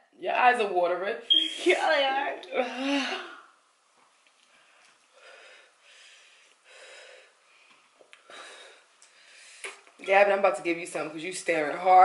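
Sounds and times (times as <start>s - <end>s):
person breathing heavily: 5.1s - 9.8s.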